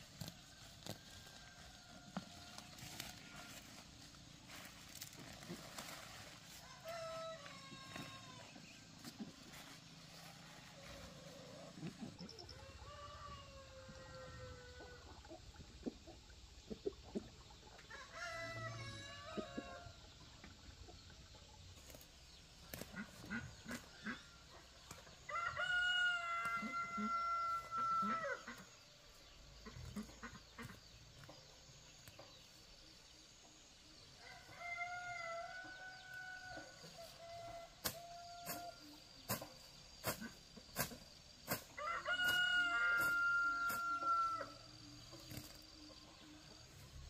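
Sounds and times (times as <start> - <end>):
rooster crowing: 6.6 - 8.5, 12.5 - 15.0, 25.3 - 28.5, 34.2 - 38.8, 41.8 - 44.6.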